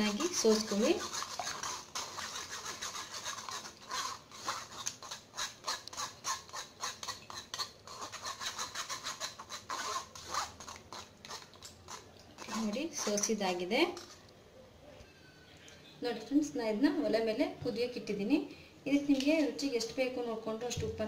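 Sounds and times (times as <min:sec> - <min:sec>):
spoon scraping wire-mesh strainer: 0:00.0 - 0:14.2.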